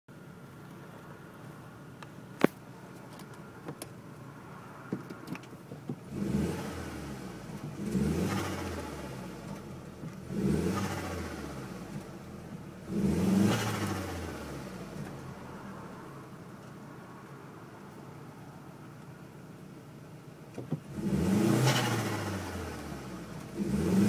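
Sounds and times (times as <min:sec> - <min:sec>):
car engine revving: 0:05.9 - 0:16.3, 0:20.8 - 0:24.0.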